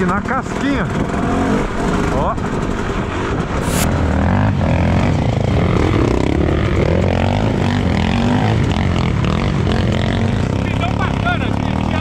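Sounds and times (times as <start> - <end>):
dirt bike engine revving: 3.6 - 12.0.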